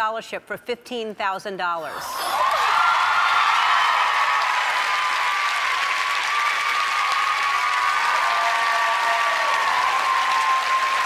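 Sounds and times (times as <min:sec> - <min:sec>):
audience applauding: 0:02.3 - 0:11.0
high-pitched cheers: 0:02.3 - 0:11.0.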